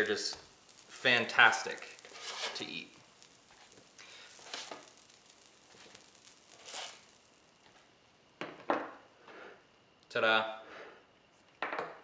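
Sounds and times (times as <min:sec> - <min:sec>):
spatula scraping on ceramic plate: 0:02.0 - 0:02.7, 0:06.6 - 0:07.1.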